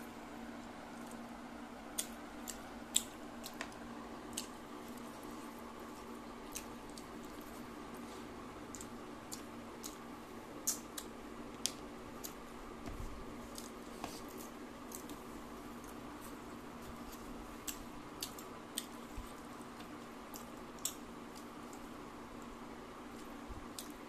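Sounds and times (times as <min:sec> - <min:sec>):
fingers mixing wet rice: 0:00.9 - 0:24.0
chewing: 0:02.0 - 0:12.4, 0:13.4 - 0:21.9.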